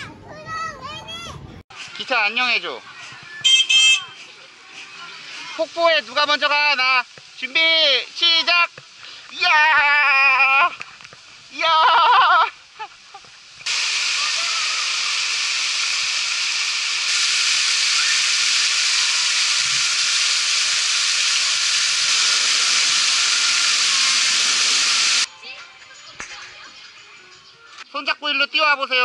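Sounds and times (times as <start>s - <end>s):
fountain water splashing: 4.5s - 25.3s.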